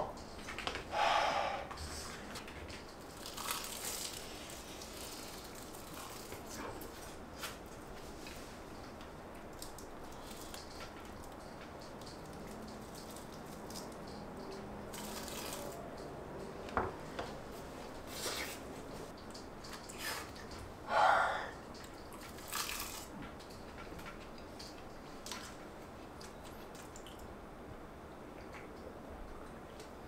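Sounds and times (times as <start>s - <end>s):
chewing: 2.4s - 7.6s.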